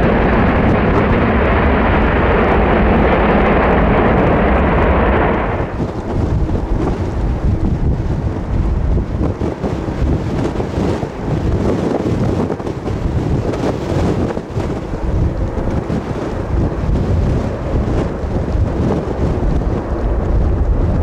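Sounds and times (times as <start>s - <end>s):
gusty wind buffeting microphone: 0.0s - 21.0s.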